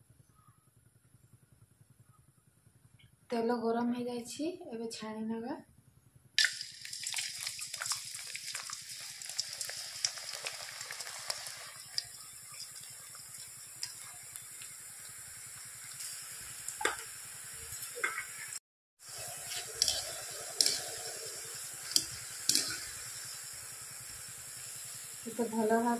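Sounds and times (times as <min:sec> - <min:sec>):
batter sizzling in hot oil: 0:06.4 - 0:25.9.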